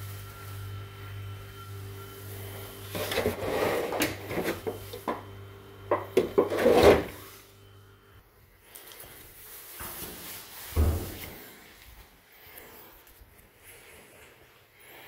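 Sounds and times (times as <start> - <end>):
containers clattering in refrigerator: 2.9 - 5.2, 5.9 - 7.2.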